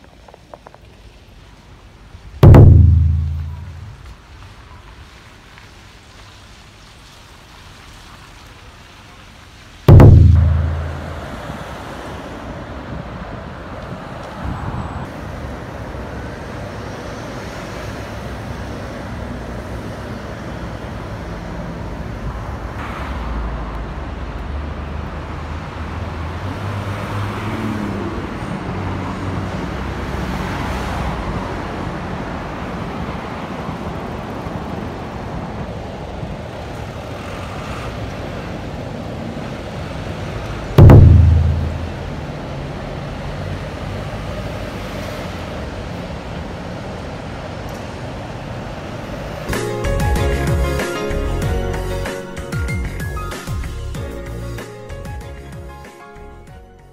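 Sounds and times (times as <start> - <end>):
busy road traffic: 0.0 - 56.9
loud thump: 2.4 - 4.0, 9.9 - 11.5, 40.8 - 42.2.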